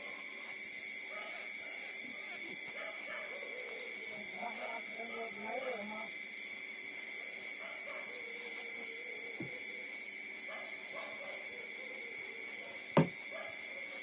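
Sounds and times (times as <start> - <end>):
sharp thump: 13.0 - 13.2.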